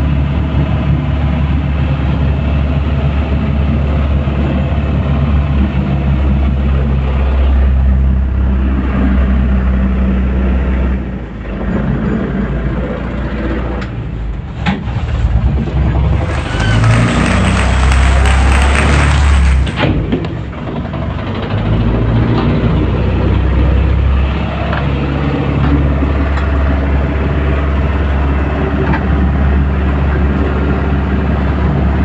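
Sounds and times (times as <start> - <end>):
diesel engine droning: 15.2 - 32.0.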